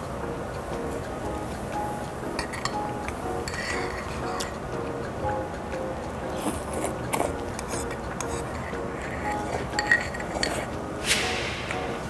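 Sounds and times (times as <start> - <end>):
light background music: 0.0 - 12.0
metal spoon clinking on bowl: 2.4 - 4.6, 6.4 - 10.7.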